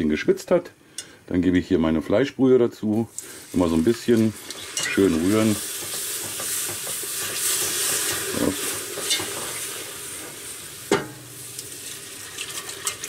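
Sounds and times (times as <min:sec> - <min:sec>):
roux sizzling: 0:02.8 - 0:13.0
whisk stirring in a pot: 0:03.1 - 0:10.4, 0:11.6 - 0:13.0.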